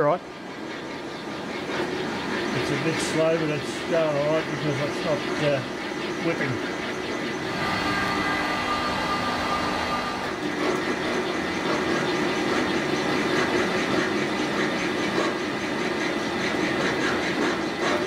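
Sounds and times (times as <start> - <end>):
metal lathe humming: 0.0 - 18.0.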